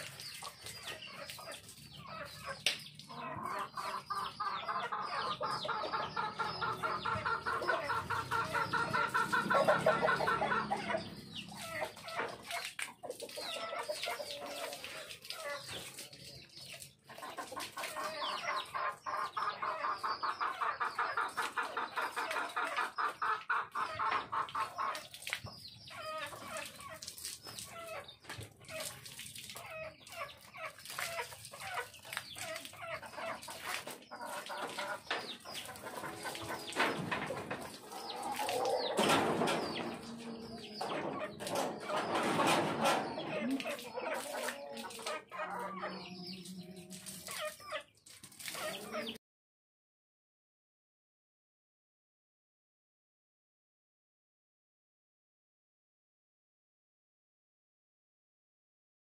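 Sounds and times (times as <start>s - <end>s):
water splashes: 0.0s - 4.2s, 5.4s - 19.2s, 23.8s - 41.9s
chickens clucking: 0.0s - 49.2s.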